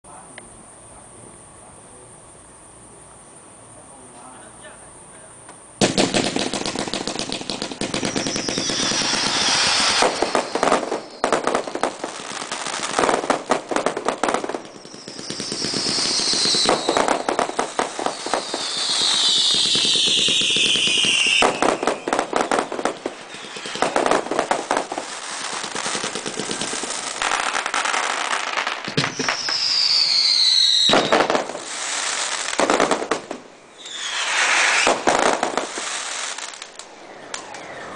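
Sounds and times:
firework cake barrage: 0.1s - 37.9s
firework crackle: 5.8s - 37.9s
whistling tones falling in pitch: 37.0s - 37.9s.

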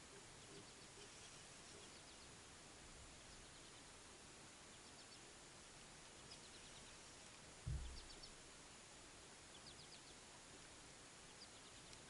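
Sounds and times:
faint bird chirps: 0.0s - 2.5s, 3.1s - 12.0s
low thump: 7.6s - 8.2s.

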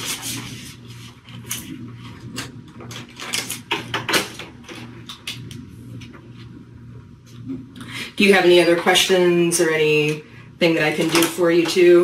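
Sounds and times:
plastic handling noises: 0.0s - 6.5s
low steady hum: 0.0s - 12.0s.

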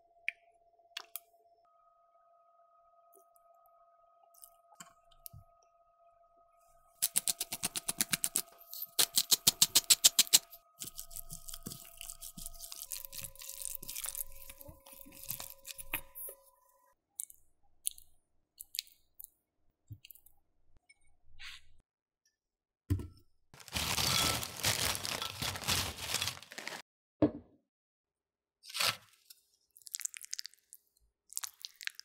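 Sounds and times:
pepper grinder clicking: 7.0s - 11.0s.

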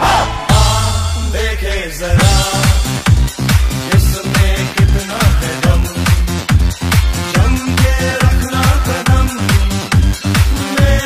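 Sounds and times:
electronic dance music: 0.0s - 11.0s
deep kick drum: 2.1s - 6.7s.

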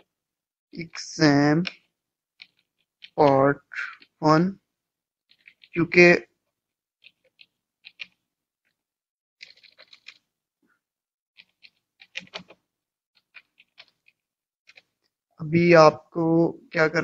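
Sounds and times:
keyboard keys clicking: 1.6s - 3.4s, 7.0s - 8.2s, 9.4s - 10.2s, 11.4s - 12.6s.

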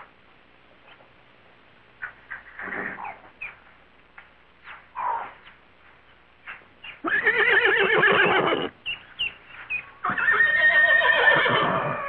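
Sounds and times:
horse whinnying: 7.0s - 8.8s, 10.0s - 12.0s.

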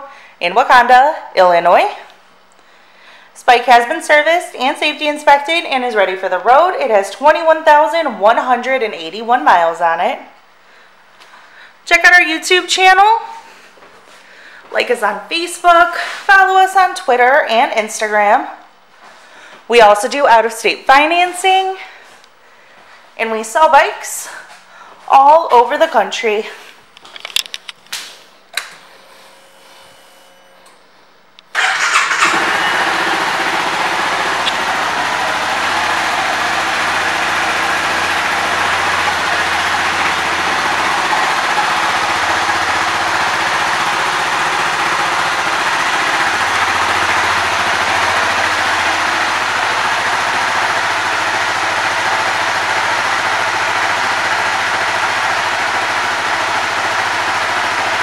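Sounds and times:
motorcycle engine starting and idling: 31.5s - 58.0s.

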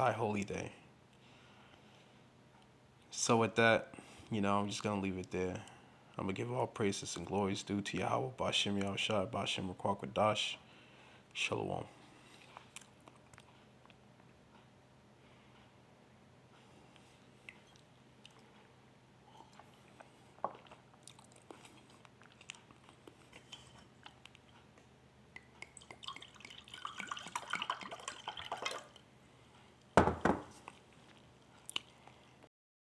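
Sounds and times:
loud thump: 30.0s - 30.5s.

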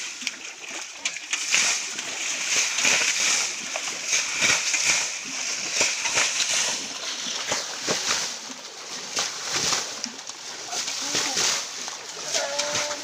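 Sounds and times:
water splashing: 0.0s - 13.0s.

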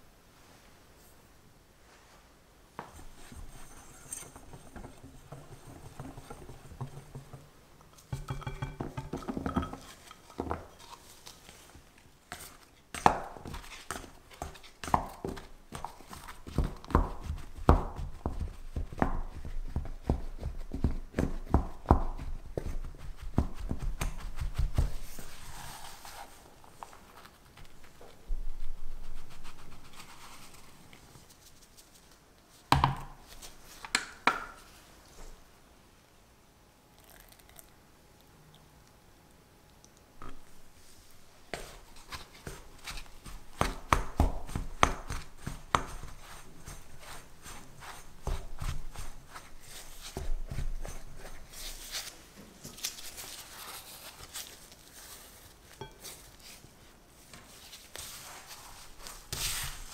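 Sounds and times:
whisk stirring flour in bowl: 3.1s - 7.4s, 41.6s - 52.1s
utensil knocking bowl bottom: 4.7s - 9.9s
dough rubbing: 9.7s - 32.3s, 40.8s - 59.9s.

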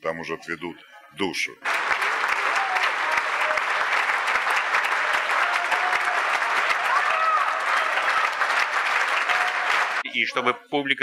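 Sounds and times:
audience clapping: 1.6s - 10.1s.

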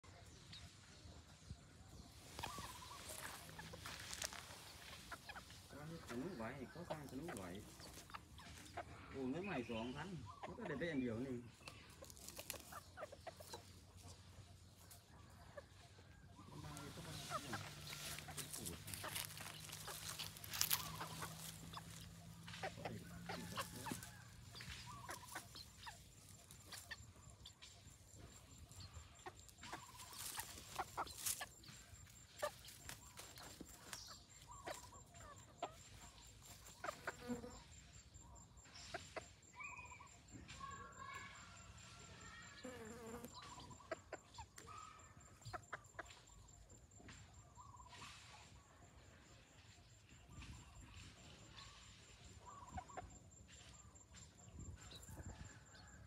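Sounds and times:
chickens clucking softly: 0.0s - 56.0s
scratching in dry leaves and dirt: 0.1s - 38.2s.

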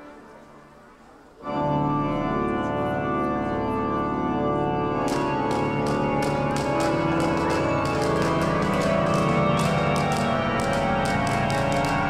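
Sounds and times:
organ-like chord with deep bass: 1.4s - 12.0s
sharp percussive hits: 5.1s - 12.0s.

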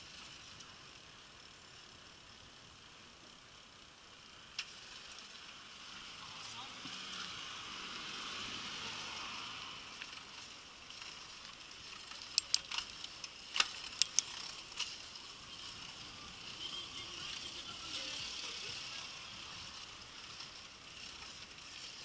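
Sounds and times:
bicycle rolling on pavement: 0.0s - 22.0s
sharp irregular clicks: 11.9s - 14.9s.

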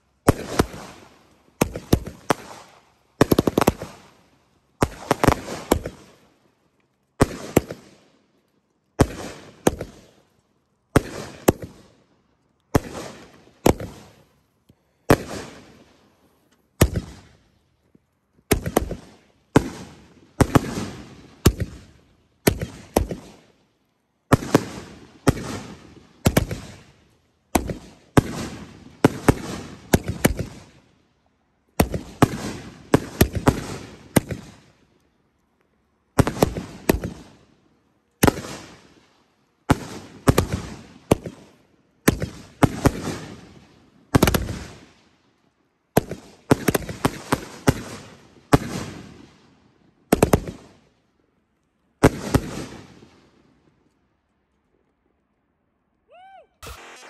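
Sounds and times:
echo of firework shots: 0.1s - 6.4s, 7.2s - 31.1s, 31.7s - 35.0s, 36.1s - 37.6s, 38.2s - 45.1s, 45.9s - 51.0s, 52.0s - 53.9s, 56.2s - 57.0s
firework cake shots cracking: 56.6s - 57.0s.

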